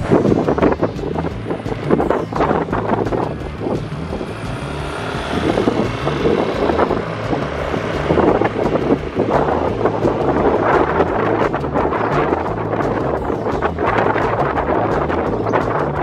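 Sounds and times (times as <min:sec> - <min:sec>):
motorcycle engine running: 0:00.0 - 0:16.0
wind buffeting microphone: 0:00.0 - 0:16.0.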